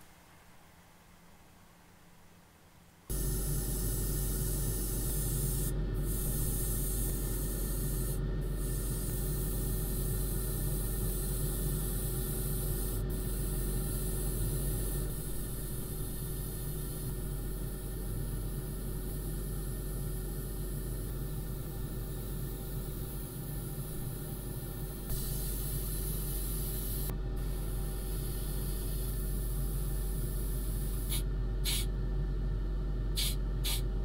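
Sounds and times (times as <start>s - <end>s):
airbrush spraying hiss: 3.1s - 31.9s, 33.2s - 33.9s.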